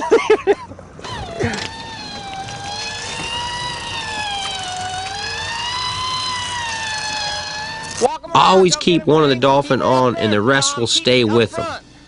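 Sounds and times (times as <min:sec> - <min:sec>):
electric fishing reel whining: 0:00.7 - 0:08.6.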